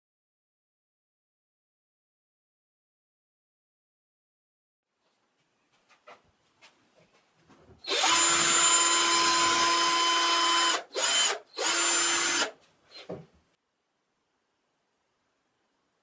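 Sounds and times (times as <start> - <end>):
power drill motor whine: 7.8 - 12.6.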